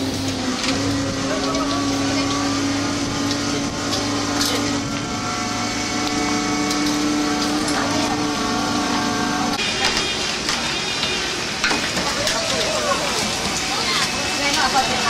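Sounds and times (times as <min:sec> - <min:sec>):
boat machinery droning: 0:00.0 - 0:15.0.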